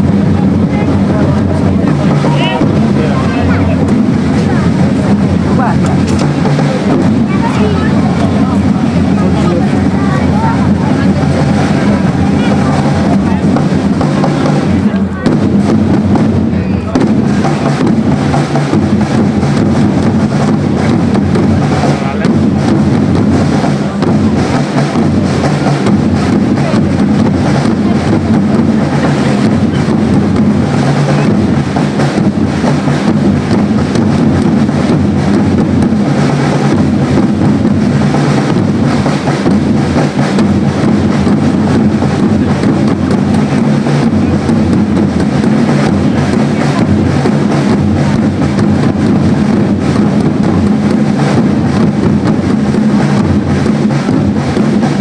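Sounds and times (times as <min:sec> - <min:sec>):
drums beating steadily: 0:00.0 - 0:55.0.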